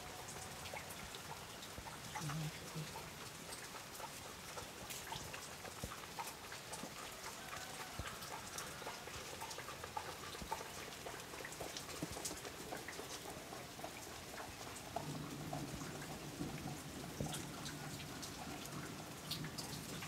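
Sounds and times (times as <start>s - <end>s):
small irregular ticks and clicks: 0.2s - 20.0s.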